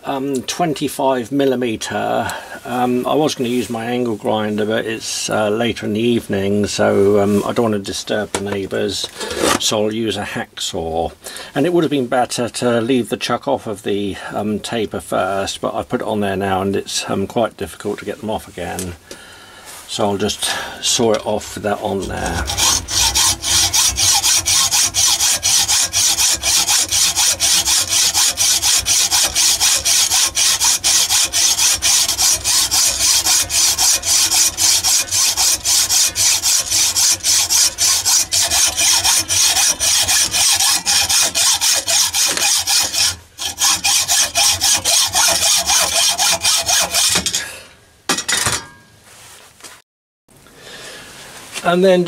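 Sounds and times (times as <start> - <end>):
hacksaw cutting steel: 9.2 - 9.7, 20.2 - 47.5.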